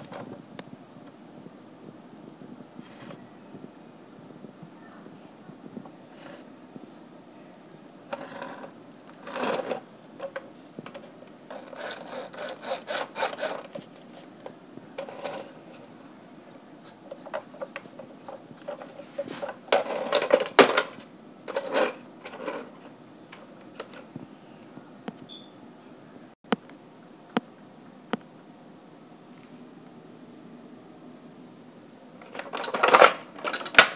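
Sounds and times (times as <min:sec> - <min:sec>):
plastic toy car clicking and rattling: 0:08.1 - 0:13.8, 0:32.2 - 0:33.9.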